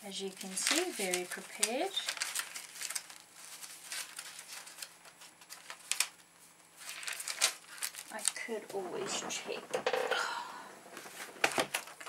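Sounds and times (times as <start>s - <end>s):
notebook pages rustling: 0.1s - 9.6s, 10.9s - 12.0s
pages flicking over: 6.8s - 8.4s.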